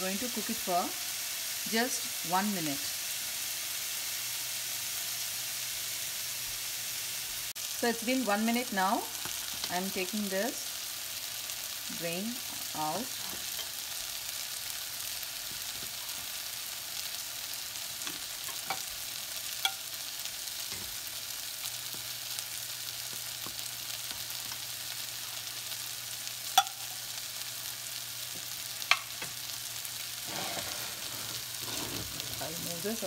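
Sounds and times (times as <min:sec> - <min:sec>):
water boiling in a pot: 0:30.2 - 0:33.0.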